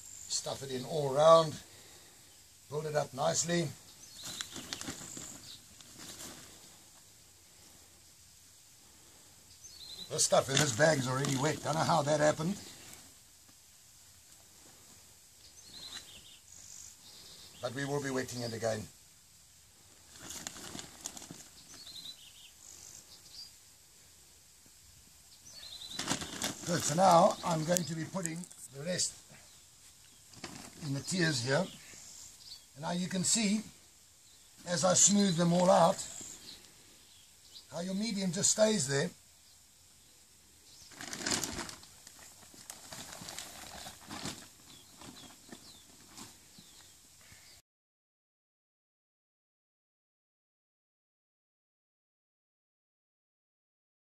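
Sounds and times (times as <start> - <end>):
hands rustling compost: 0.0 - 8.0, 8.8 - 18.9, 19.8 - 23.5, 25.5 - 33.8, 40.6 - 47.4
bird chirping: 2.9 - 5.7, 9.5 - 13.0, 15.4 - 18.8, 21.4 - 23.6, 25.3 - 33.6, 34.2 - 38.3, 44.6 - 47.6.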